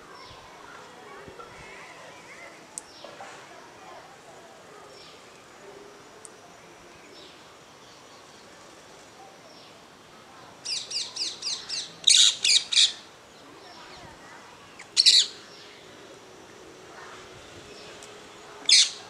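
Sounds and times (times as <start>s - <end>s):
parakeet calling: 10.7s - 13.0s, 14.8s - 15.4s, 18.6s - 19.0s.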